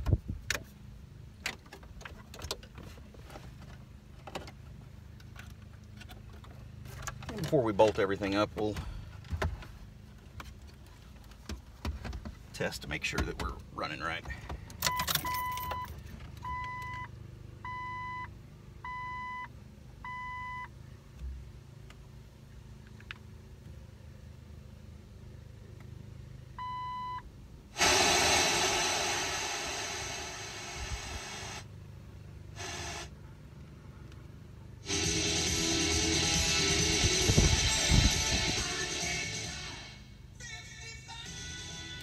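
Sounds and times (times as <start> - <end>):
loud speaker hiss: 27.8 - 31.7, 32.6 - 33.1, 34.8 - 39.4
music: 34.9 - 42.0.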